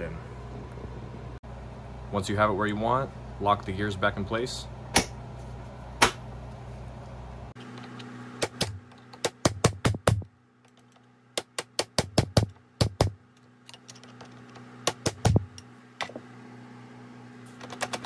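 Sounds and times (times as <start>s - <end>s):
hammer striking steel punch: 4.9s - 5.2s, 6.0s - 6.3s.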